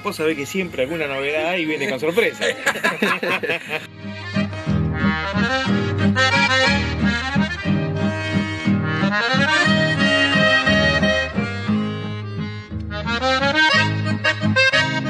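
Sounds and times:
lively accordion tune: 0.0s - 15.0s
bouncing bass line: 3.9s - 15.0s.

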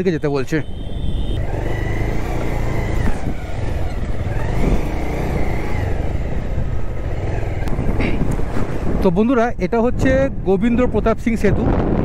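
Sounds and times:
motorcycle engine: 0.0s - 9.0s
wind rush: 2.9s - 12.0s.

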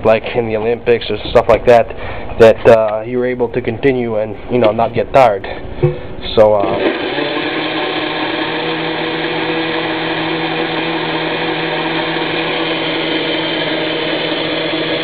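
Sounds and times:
blender running: 6.6s - 15.0s.

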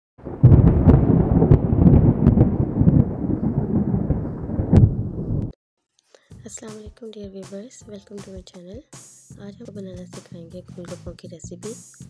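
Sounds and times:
thunder rumbling with crackles: 0.2s - 5.6s.

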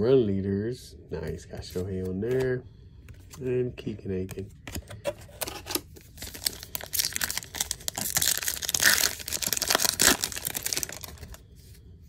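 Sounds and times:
foil wrapper crinkling: 5.4s - 11.4s.

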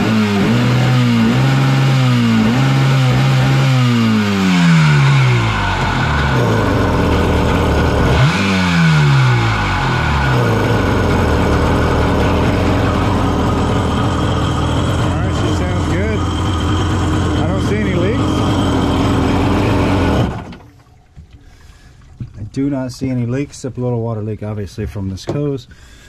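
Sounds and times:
two-stroke engine revving and idling: 0.0s - 20.6s.

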